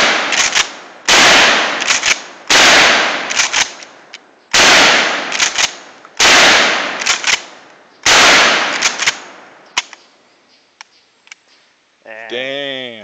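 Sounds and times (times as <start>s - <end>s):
shotgun blasts: 0.0s - 3.8s, 4.5s - 9.9s
shotgun pump clacks: 3.3s - 3.9s, 5.3s - 5.8s, 7.0s - 7.4s.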